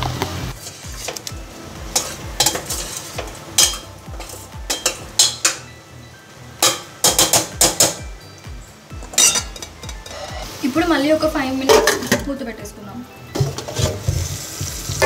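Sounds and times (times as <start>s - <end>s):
masala frying: 0.0s - 15.0s
metal spoon clinking on pot: 3.6s - 5.7s, 6.6s - 8.0s, 9.1s - 10.4s.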